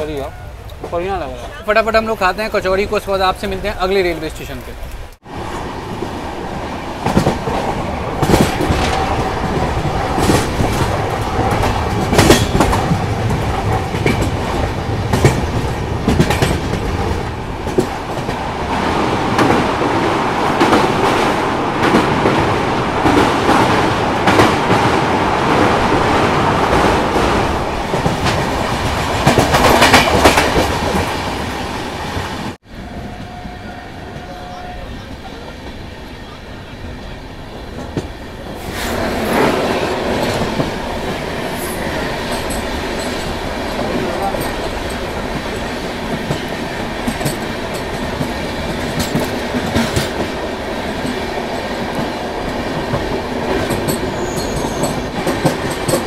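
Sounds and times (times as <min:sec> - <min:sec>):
train wheels clattering over rail joints: 0:07.0 - 0:18.4, 0:20.6 - 0:31.4, 0:41.9 - 0:56.0.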